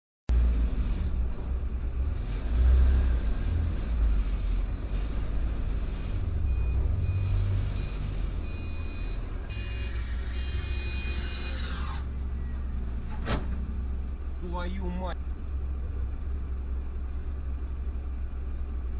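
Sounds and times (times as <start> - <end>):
car engine rumbling: 0.3 - 18.9
tyres on slushy road: 0.3 - 18.9.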